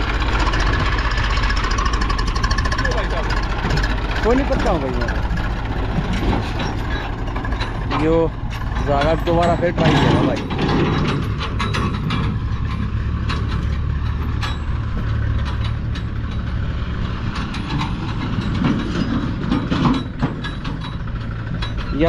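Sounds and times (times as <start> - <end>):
clanking and rattling: 0.0 - 22.0
tractor engine running hard: 0.0 - 22.0.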